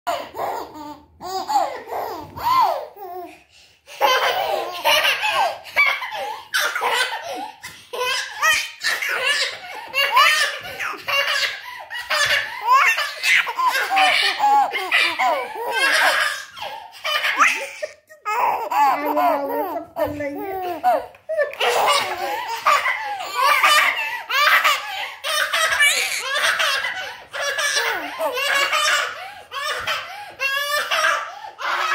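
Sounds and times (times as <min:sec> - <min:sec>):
baby laughing: 0:00.1 - 0:03.3, 0:03.9 - 0:31.9
people laughing: 0:20.7 - 0:29.0.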